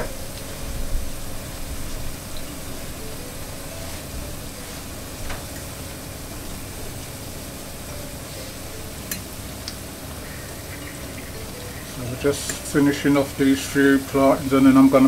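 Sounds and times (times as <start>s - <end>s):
plantains sizzling in oil: 0.0s - 15.0s
fork clicking against pan: 9.1s - 9.8s.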